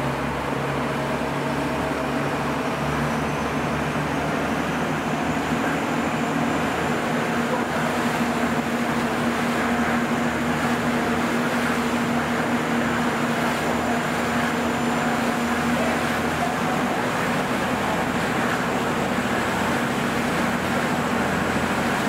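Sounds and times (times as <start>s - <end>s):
boat engine humming: 0.0s - 22.0s.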